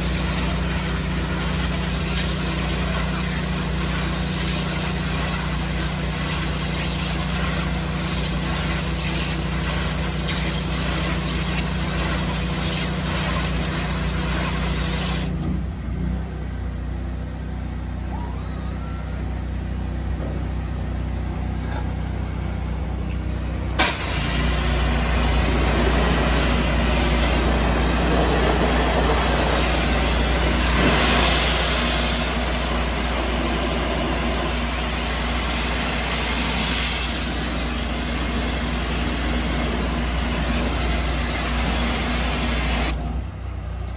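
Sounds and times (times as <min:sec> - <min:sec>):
high-pressure water spray hissing: 0:00.0 - 0:15.3, 0:23.8 - 0:43.0
pressure washer engine running: 0:00.0 - 0:15.5, 0:18.2 - 0:43.9.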